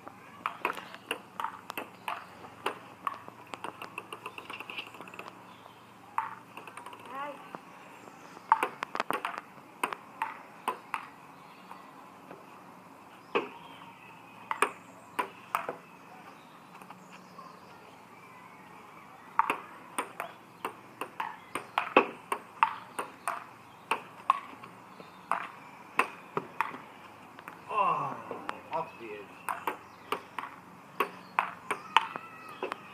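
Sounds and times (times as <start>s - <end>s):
table tennis ball clicking: 6.2s - 7.2s, 29.5s - 32.8s.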